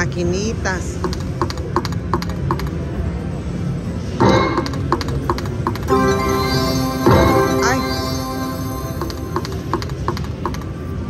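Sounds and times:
casino background hum: 0:00.0 - 0:11.0
slot machine chiming tones: 0:04.2 - 0:04.9, 0:05.9 - 0:09.7
slot machine electronic ticks: 0:04.2 - 0:10.7.

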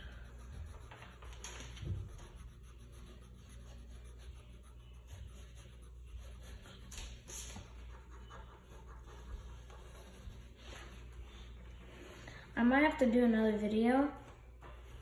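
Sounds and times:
drawing tool scratching on paper: 0:00.0 - 0:11.6.

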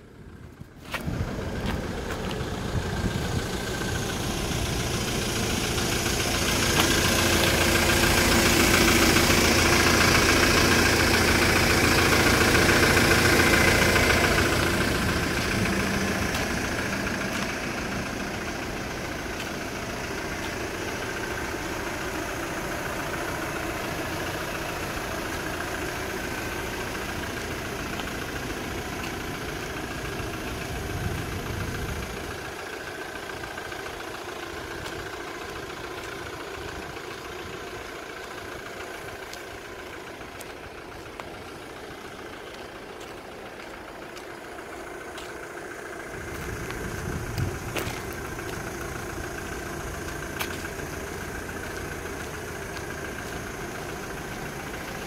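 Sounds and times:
truck engine idling: 0:00.0 - 0:55.0.

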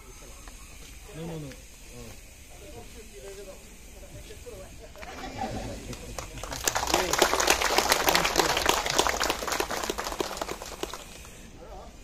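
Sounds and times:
crowd applauding: 0:05.0 - 0:11.5.

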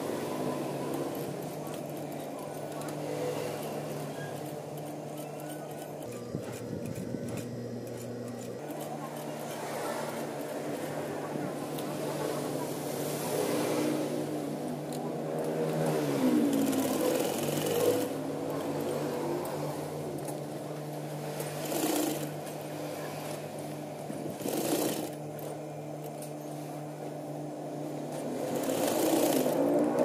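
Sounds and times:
sewing machine stitching: 0:16.2 - 0:19.0, 0:21.3 - 0:22.4, 0:24.3 - 0:25.2, 0:28.4 - 0:30.0.

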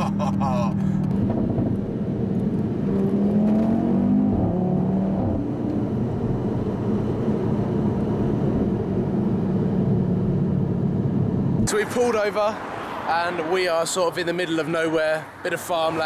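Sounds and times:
road rumble: 0:00.0 - 0:16.0
car engine accelerating: 0:00.2 - 0:11.7.

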